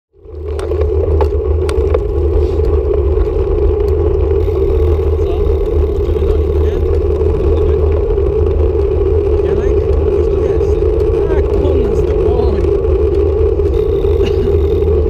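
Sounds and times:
bicycle tyre noise on road: 0:00.1 - 0:15.0
wind rumble on microphone: 0:00.1 - 0:15.0.

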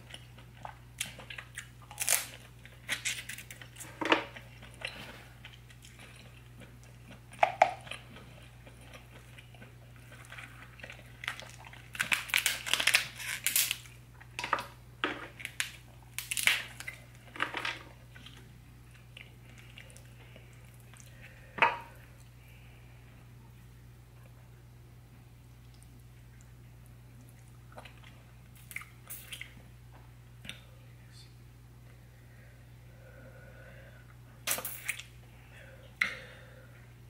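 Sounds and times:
lobster shell crackling and crunching: 0:01.0 - 0:04.7, 0:07.4 - 0:14.4, 0:15.3 - 0:18.4.

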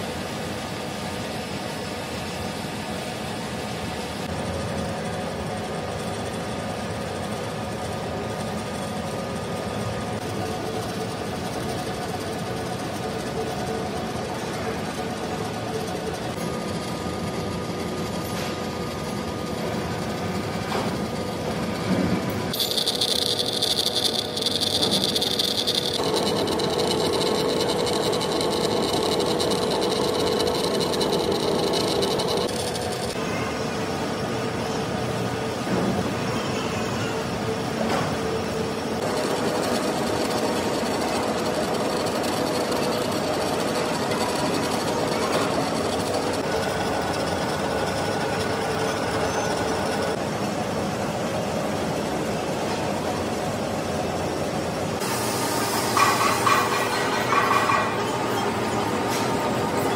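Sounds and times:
lathe mechanical hum: 0:00.0 - 0:59.9
high cutting whine: 0:22.5 - 0:33.3, 0:39.0 - 0:50.2.

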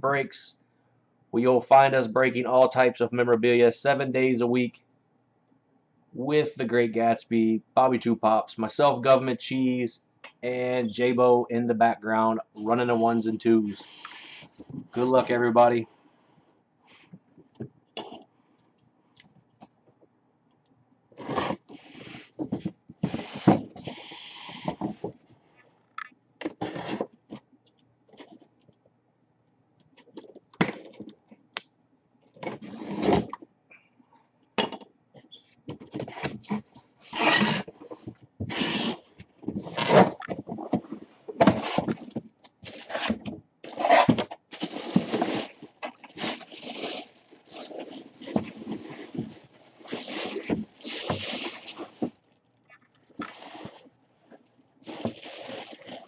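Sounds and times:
cardboard scraping and rubbing: 0:13.8 - 0:15.4, 0:21.2 - 0:25.1, 0:26.6 - 0:27.2, 0:32.4 - 0:33.3, 0:36.0 - 0:52.2, 0:53.2 - 0:53.9, 0:54.8 - 0:56.0.

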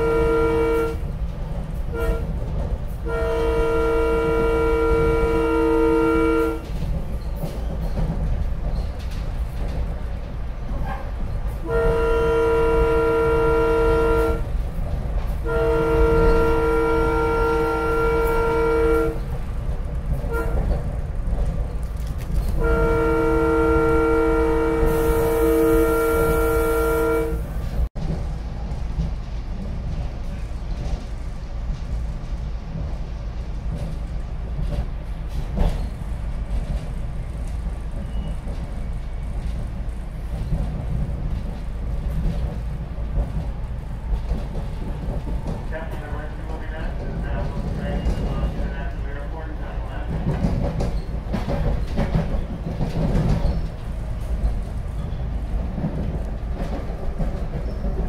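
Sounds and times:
train air horn: 0:00.0 - 0:01.1, 0:01.9 - 0:02.4, 0:03.0 - 0:06.8, 0:11.6 - 0:14.5, 0:15.4 - 0:19.3, 0:20.2 - 0:20.8, 0:22.5 - 0:27.8
train rumbling: 0:00.0 - 0:58.0.

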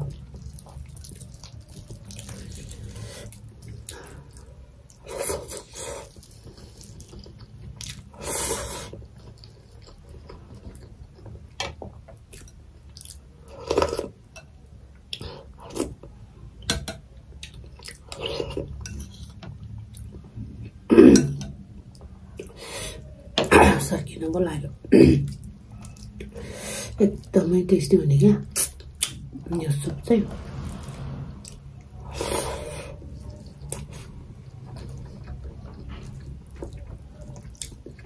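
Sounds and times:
chewing meat: 0:00.0 - 0:08.2, 0:08.9 - 0:11.5, 0:32.9 - 0:38.0.

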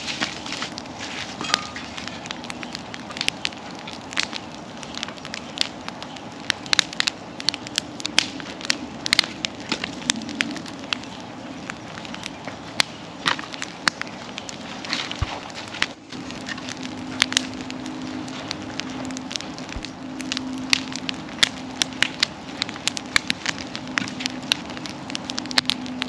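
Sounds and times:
bonfire crackling and popping: 0:00.0 - 0:26.0.

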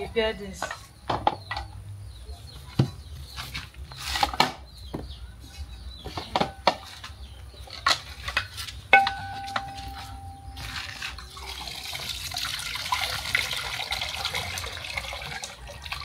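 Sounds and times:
cooking utensils clattering: 0:07.6 - 0:11.5
low steady hum: 0:08.9 - 0:12.6.

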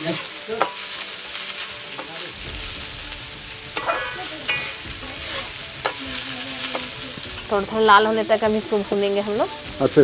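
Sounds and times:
onions sizzling in oil: 0:00.0 - 0:10.0
metal spatula scraping pan: 0:03.7 - 0:07.6.

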